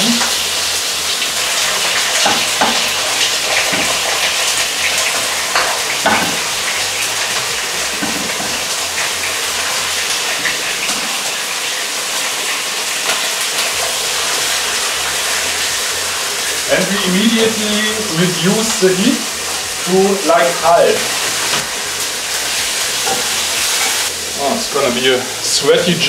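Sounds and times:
liver sizzling in frying pan: 0.0 - 26.0
knocks and oil spits: 1.6 - 11.3.

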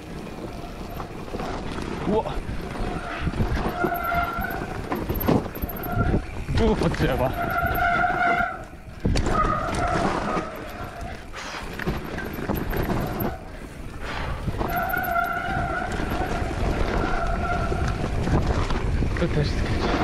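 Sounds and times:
bike tyres rumbling on dirt: 0.0 - 20.0
wind on microphone: 0.0 - 20.0.

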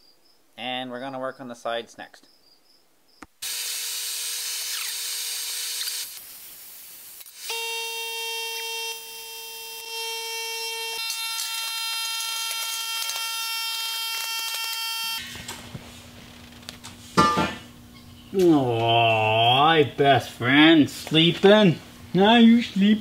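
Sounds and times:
welder crackling hiss: 4.5 - 15.5
buzzing drone of held tones: 7.4 - 15.2.

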